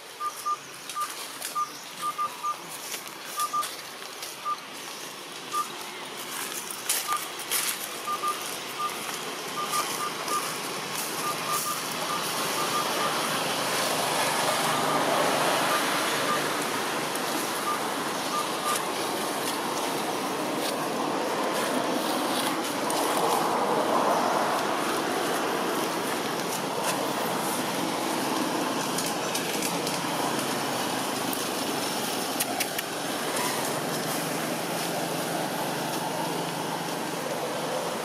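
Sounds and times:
steady rushing noise: 3.8s - 38.0s
short high peeps: 8.0s - 13.3s.

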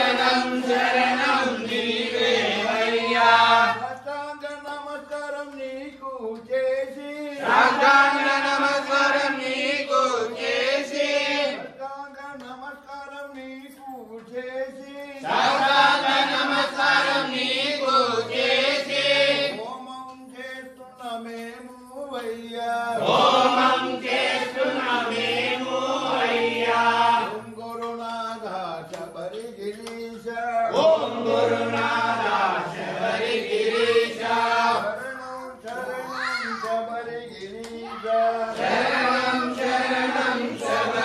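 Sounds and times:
group chanting in unison: 0.0s - 4.0s, 7.2s - 11.8s, 15.1s - 19.6s, 23.0s - 27.5s, 30.6s - 35.0s, 37.5s - 41.0s.

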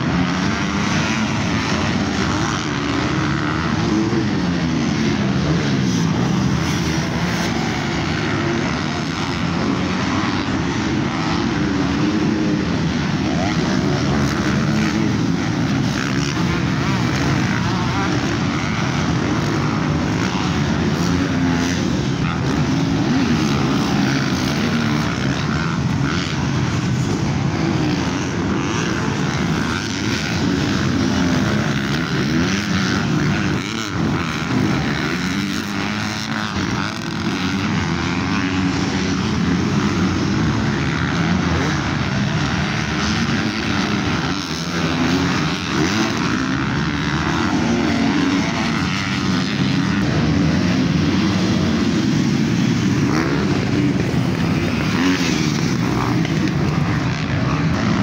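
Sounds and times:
motocross bike engines revving: 0.0s - 58.0s.

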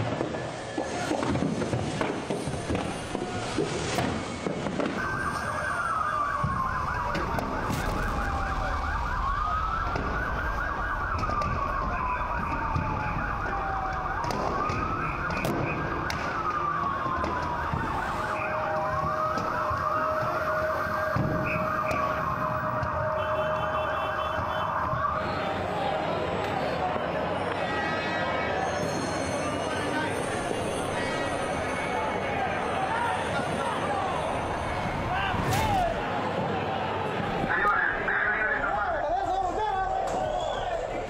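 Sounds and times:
second siren: 0.1s - 36.0s
siren wailing: 2.5s - 35.4s.

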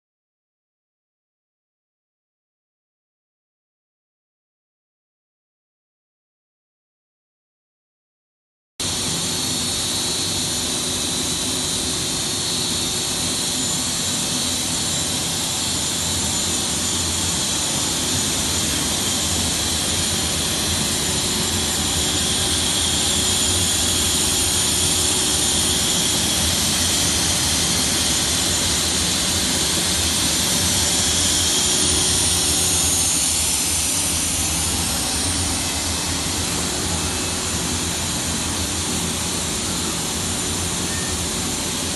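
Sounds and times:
loud machine hum: 8.8s - 41.9s
machine hiss: 8.8s - 41.9s
thin high whine: 8.8s - 41.9s.

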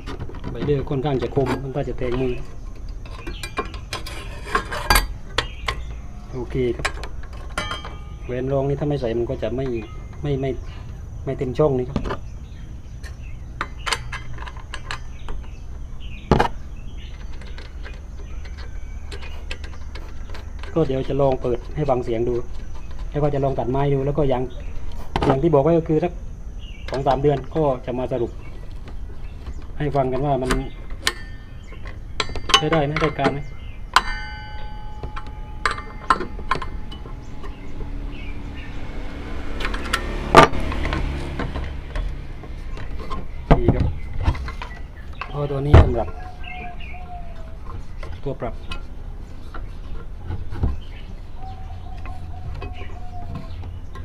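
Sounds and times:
low background rumble: 0.0s - 54.0s
metal washer clicks and knocks: 6.7s - 8.3s, 29.9s - 38.1s.

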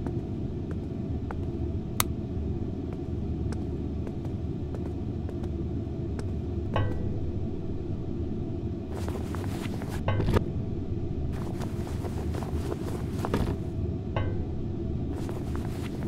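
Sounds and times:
low rumbling drone: 0.0s - 16.0s
metallic clank: 6.7s - 7.4s, 9.0s - 10.6s, 14.2s - 15.7s.

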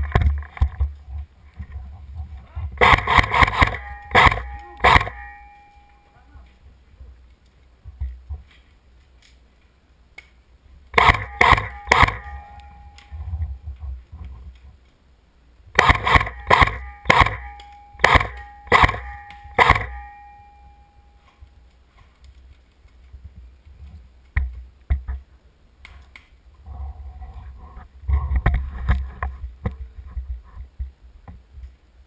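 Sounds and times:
airsoft rifle shots: 2.8s - 6.0s, 10.9s - 13.3s, 15.7s - 20.9s.

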